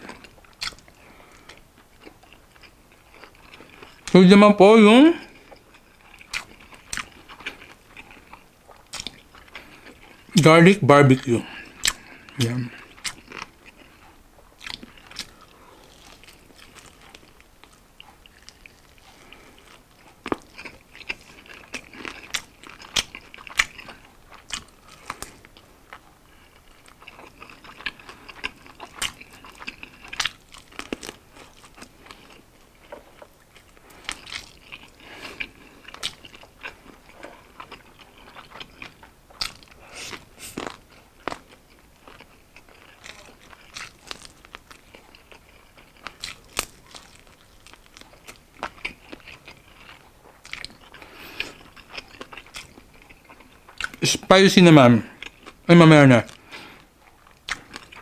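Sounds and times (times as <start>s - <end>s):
crunchy bites: 0.0s - 4.2s, 5.2s - 10.4s, 11.1s - 54.1s, 55.1s - 58.0s
wet chewing clicks: 0.0s - 4.2s, 5.2s - 10.4s, 11.5s - 54.1s, 55.1s - 58.0s.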